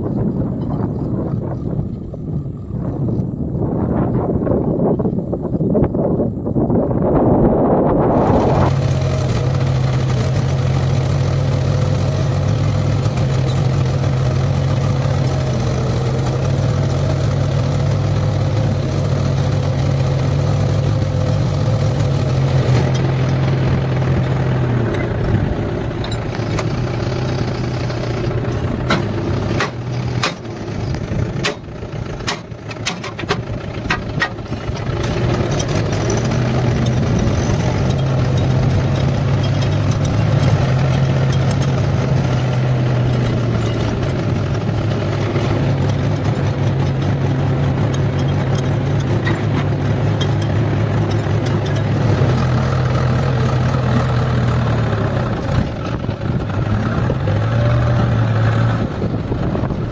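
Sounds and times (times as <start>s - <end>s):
tractor diesel engine running: 0.0s - 59.9s
sharp irregular clicks and knocks: 28.8s - 41.9s, 45.3s - 52.4s.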